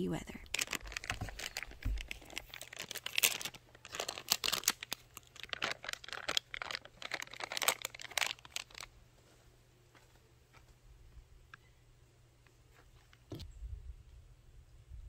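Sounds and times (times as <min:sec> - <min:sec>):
plastic pouch crinkling: 0:00.3 - 0:08.9.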